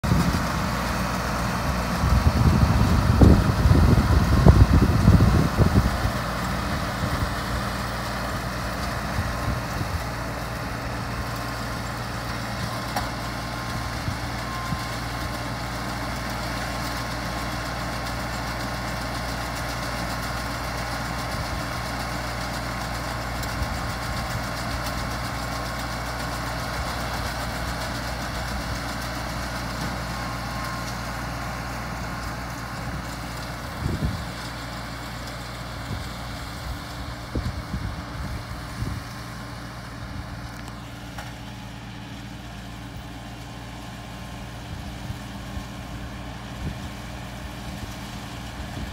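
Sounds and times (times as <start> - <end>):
tractor engine running: 0.0 - 48.9.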